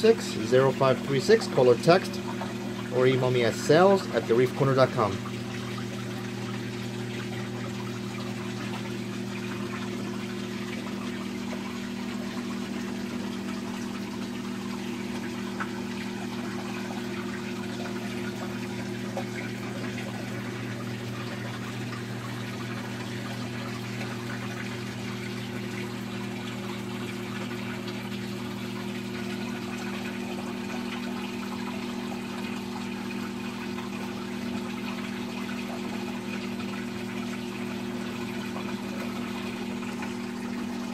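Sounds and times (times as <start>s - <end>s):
electric pump hum: 0.0s - 40.9s
water trickling: 0.0s - 40.9s.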